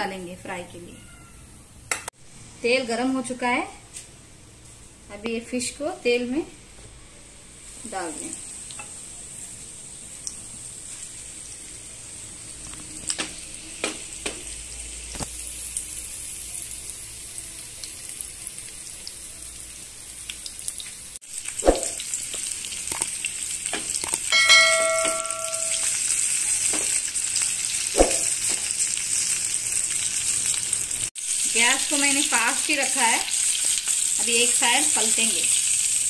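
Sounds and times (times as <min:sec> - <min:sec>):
fish sizzling in hot oil: 0:07.7 - 0:36.0
brief bell-like ring: 0:24.3 - 0:26.0.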